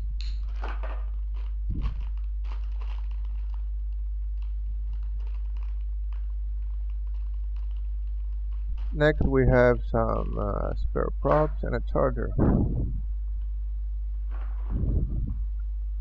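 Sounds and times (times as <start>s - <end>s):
steady low hum: 0.0s - 16.0s
plastic bag crinkling: 0.4s - 10.8s.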